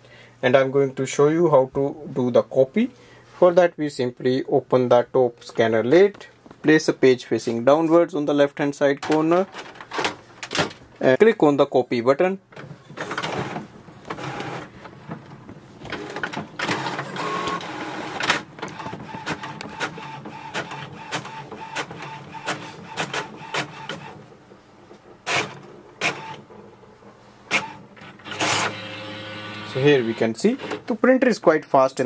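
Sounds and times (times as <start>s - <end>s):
printer clacks: 12.5s - 24.3s, 25.2s - 26.5s, 27.5s - 30.9s
printer mechanism whirring and clicking: 12.5s - 30.9s
steady printer whine: 12.9s - 30.9s.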